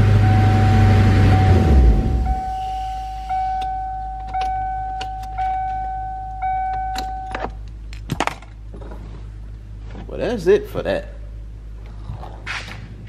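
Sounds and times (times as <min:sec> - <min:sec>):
car warning chime dinging: 0:00.0 - 0:07.6.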